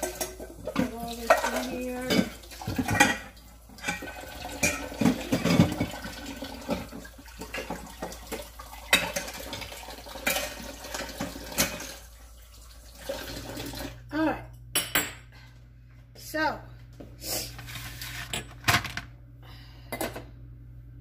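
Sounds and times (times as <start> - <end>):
kitchenware clattering against sink: 0.0 - 12.0
water running from tap: 0.0 - 14.1.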